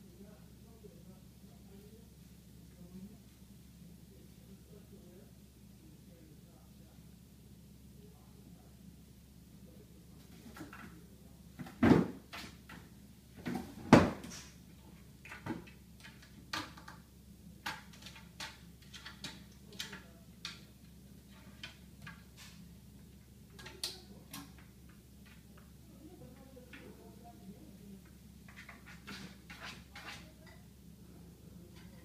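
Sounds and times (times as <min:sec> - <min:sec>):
cabinet door knocking and rattling: 0:11.6 - 0:12.2, 0:13.4 - 0:14.3.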